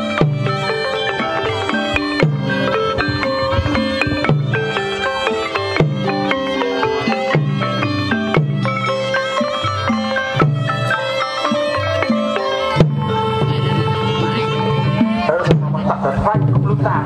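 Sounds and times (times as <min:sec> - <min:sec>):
reed wind melody: 0:00.0 - 0:16.4
drums: 0:00.0 - 0:17.0
struck melodic percussion: 0:00.0 - 0:17.0.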